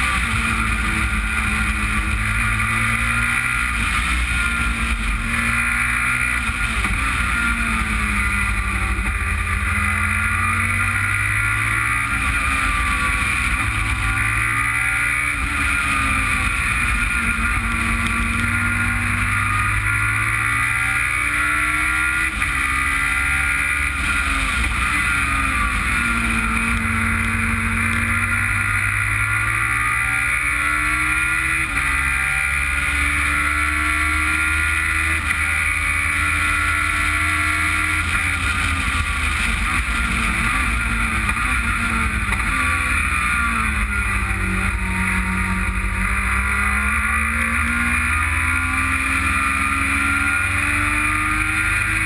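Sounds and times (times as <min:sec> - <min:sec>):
race car engine revving: 0:00.0 - 0:52.0.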